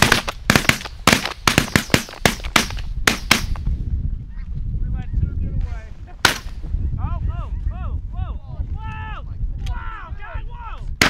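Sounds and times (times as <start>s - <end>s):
shotgun fire: 0.0s - 3.6s, 6.2s - 6.6s.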